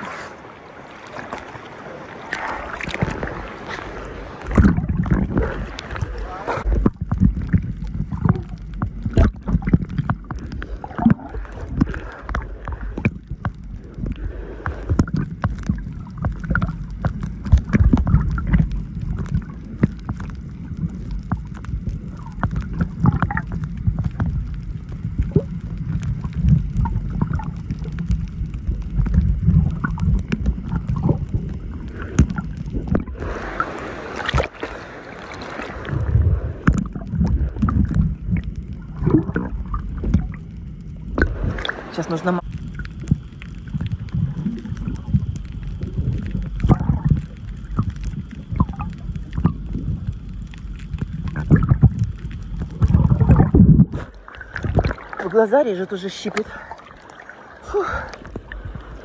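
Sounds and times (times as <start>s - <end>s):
muffled underwater rumble: 0.0s - 59.0s
underwater clicks and crackles: 0.0s - 59.0s
water splashing: 0.0s - 59.0s.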